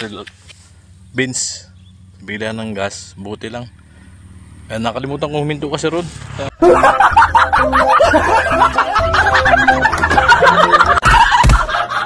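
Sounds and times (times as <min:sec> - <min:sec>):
men laughing loudly: 0:06.6 - 0:12.0
music: 0:06.6 - 0:12.0.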